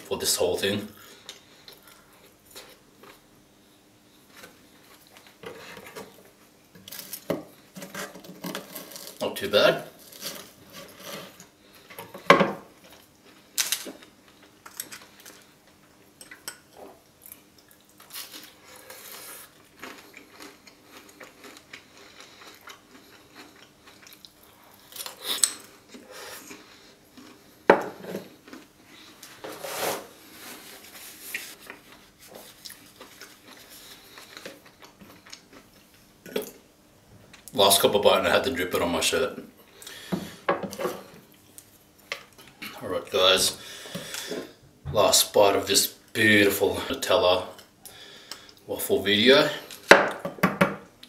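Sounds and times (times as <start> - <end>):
knife and fork scraping board: 10.2 - 11.4, 29.4 - 31.6.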